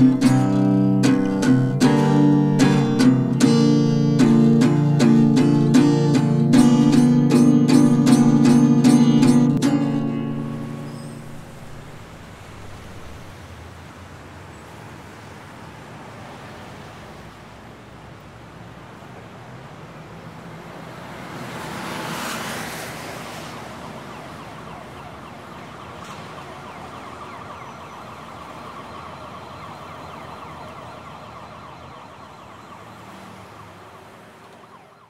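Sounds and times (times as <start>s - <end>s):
distant siren: 0.0s - 13.4s, 21.4s - 35.0s
street traffic: 0.0s - 35.0s
vehicle passing: 19.3s - 35.0s.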